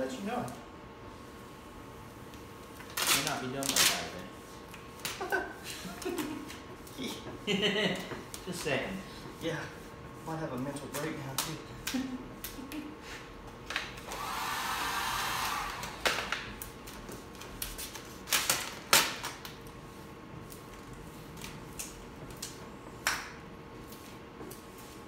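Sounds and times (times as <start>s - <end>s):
vinyl film crackling: 2.2s - 5.4s.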